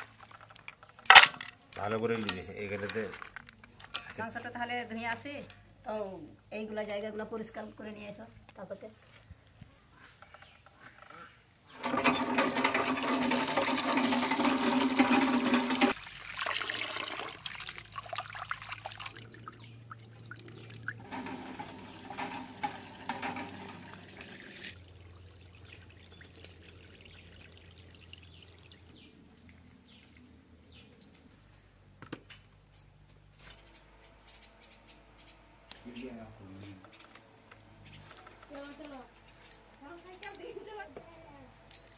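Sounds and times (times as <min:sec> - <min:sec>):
water gushing into steel bowl: 0:11.8 - 0:29.0.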